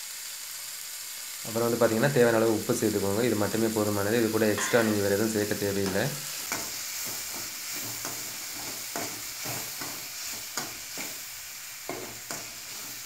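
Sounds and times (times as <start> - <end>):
oil sizzling: 0.0 - 13.0
metal spatula scraping metal pan: 4.6 - 5.6.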